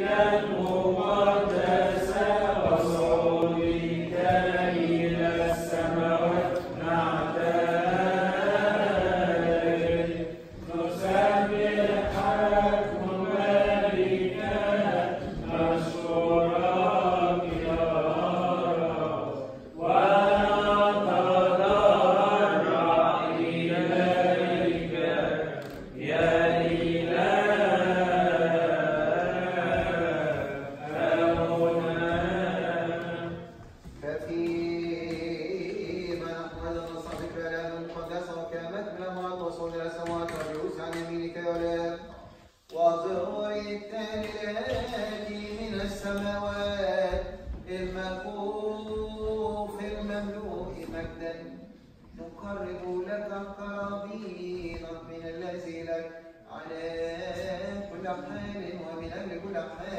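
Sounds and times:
voices chanting unaccompanied: 0.0 - 38.4.

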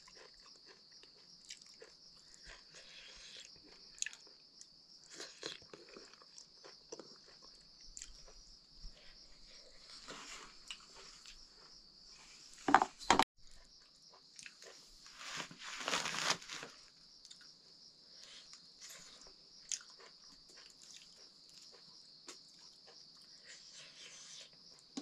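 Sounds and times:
chewing: 0.0 - 11.7, 13.4 - 15.0, 18.2 - 24.9
rustling: 14.6 - 16.9.

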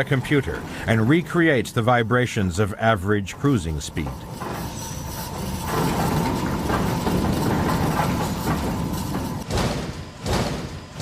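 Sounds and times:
hydraulic shaker rig rumbling: 0.0 - 11.0
heavy thuds: 4.4 - 11.0.

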